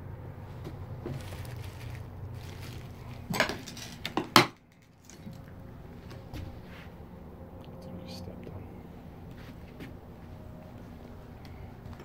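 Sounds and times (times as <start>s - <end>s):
brittle object crunching underfoot: 0.6s - 5.5s.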